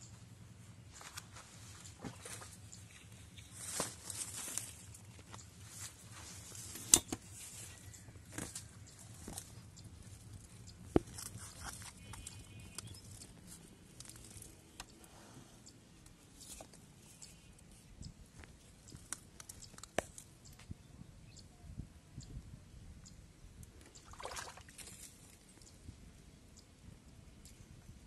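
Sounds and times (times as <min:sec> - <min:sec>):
fishing line clicks and rustles: 0:00.9 - 0:20.7, 0:23.8 - 0:25.8.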